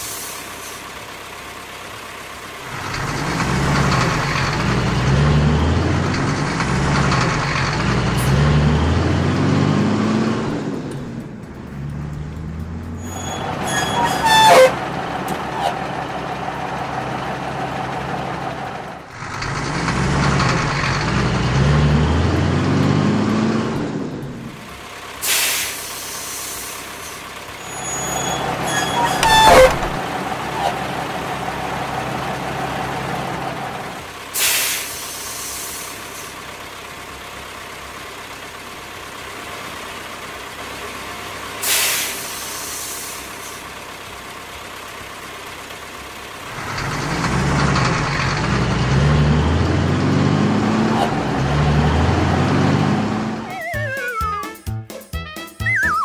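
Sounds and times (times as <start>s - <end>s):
air brake hisses: 0.0s - 0.8s, 25.2s - 27.2s, 34.3s - 36.4s, 41.6s - 43.6s
truck engine revving: 0.9s - 25.9s, 26.8s - 35.0s, 39.0s - 54.4s.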